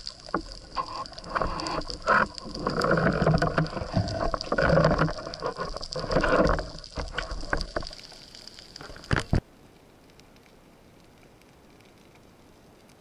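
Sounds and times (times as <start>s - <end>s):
muffled underwater noise: 0.2s - 7.8s.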